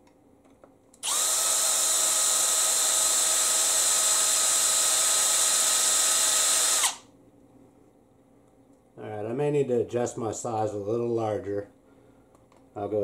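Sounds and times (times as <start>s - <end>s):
cordless drill running: 1.0s - 7.0s.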